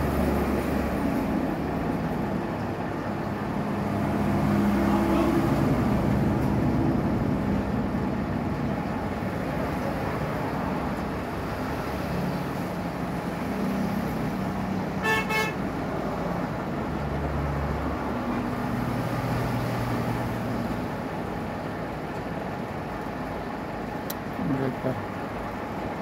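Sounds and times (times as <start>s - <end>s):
road traffic engines: 0.0s - 26.0s
vehicle horn toot: 15.0s - 15.6s.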